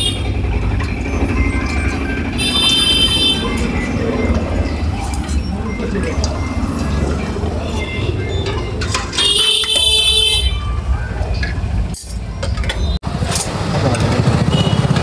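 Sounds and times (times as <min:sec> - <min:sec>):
vehicle horn: 0:00.0 - 0:00.3, 0:02.4 - 0:03.7, 0:09.1 - 0:10.7, 0:14.4 - 0:15.0
street traffic: 0:00.0 - 0:15.0.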